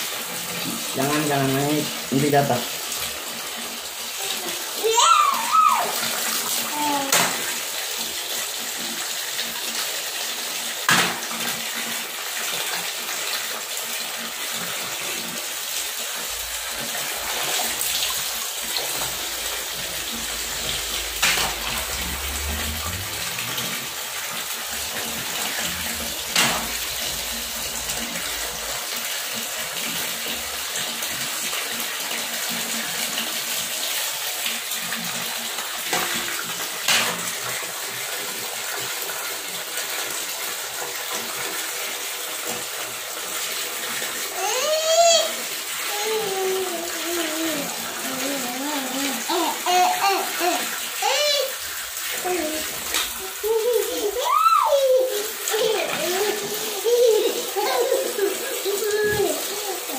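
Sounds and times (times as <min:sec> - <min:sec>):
tap water splashing on tiles: 0:00.0 - 0:59.9.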